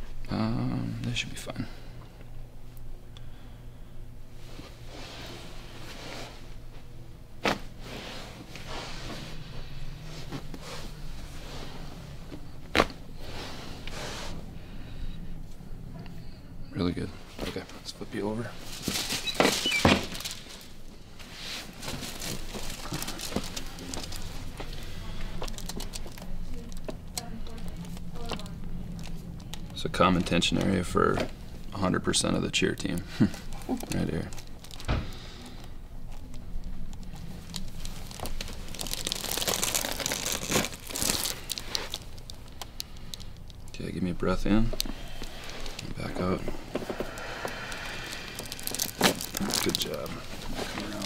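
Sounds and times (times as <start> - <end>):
rustling of clothing and skin: 4.4 - 14.4, 18.5 - 31.5, 36.0 - 43.6, 44.4 - 51.0
short squeaks: 19.2 - 20.2.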